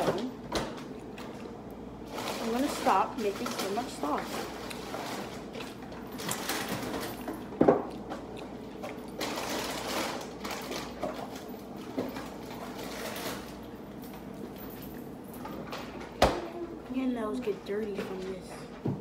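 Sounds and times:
chewing close to microphone: 0:02.4 - 0:13.4.

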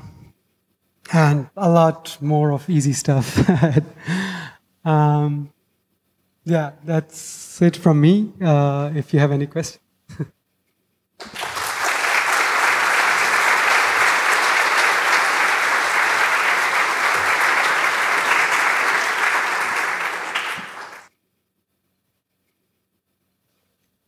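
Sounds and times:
audience applauding: 0:11.2 - 0:21.1.

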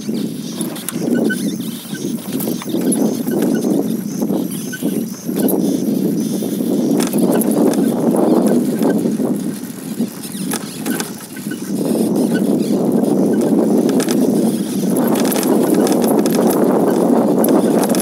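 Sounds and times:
gravel clicks and rattles: 0:00.0 - 0:18.0
wind buffeting microphone: 0:00.0 - 0:18.0
tyres rolling over stony dirt: 0:06.7 - 0:18.0.

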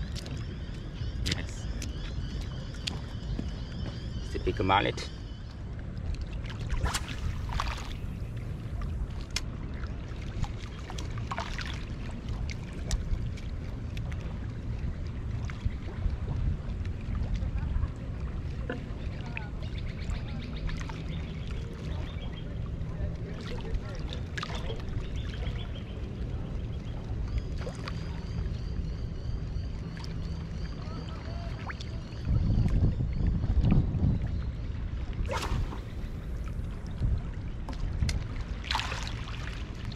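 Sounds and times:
wind rumble: 0:05.1 - 0:23.2, 0:30.4 - 0:39.9
waves lapping at shoreline: 0:06.5 - 0:13.0, 0:35.2 - 0:36.6, 0:38.2 - 0:39.9
splashy bursts: 0:35.3 - 0:36.1.

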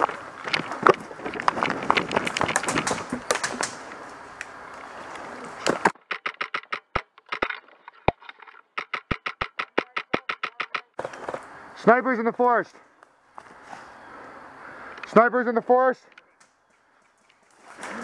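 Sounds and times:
twigs cracking: 0:00.0 - 0:11.5.

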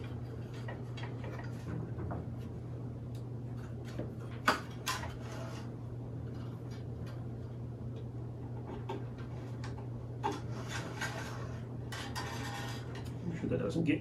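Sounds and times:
steady low hum: 0:00.0 - 0:14.0
wire scraping against wood: 0:03.5 - 0:07.2, 0:08.5 - 0:13.4.

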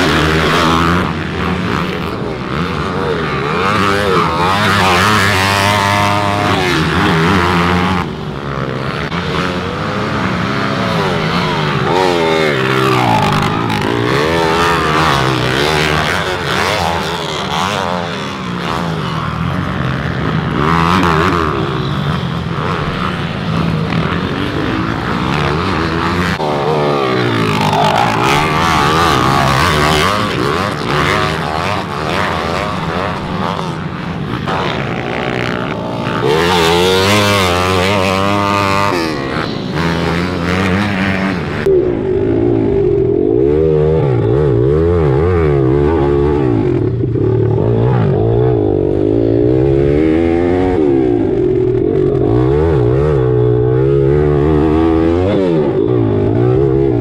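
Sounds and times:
minibike engines revving: 0:00.0 - 0:57.0.

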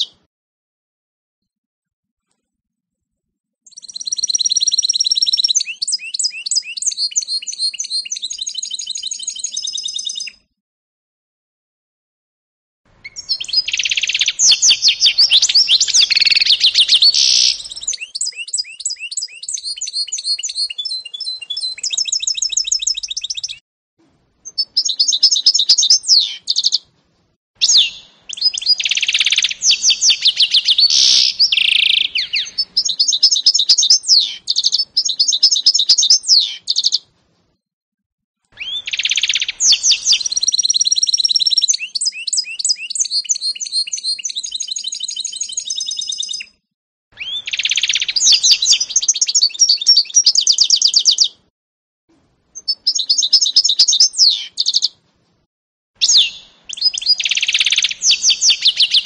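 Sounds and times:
bird singing twittering trills: 0:03.7 - 0:10.5, 0:13.0 - 0:23.6, 0:24.4 - 0:26.8, 0:27.6 - 0:37.0, 0:38.6 - 0:46.6, 0:47.2 - 0:51.4, 0:52.6 - 0:54.9, 0:56.0 - 0:59.0.

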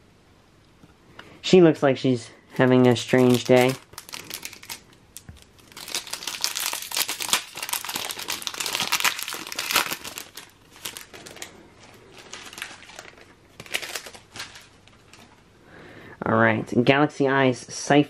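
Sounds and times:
foil pack crinkling torn open: 0:02.7 - 0:15.4.

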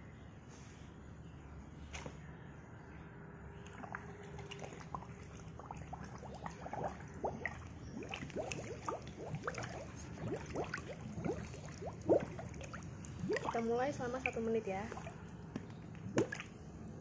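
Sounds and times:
water splashing and bubbling: 0:03.6 - 0:17.0.

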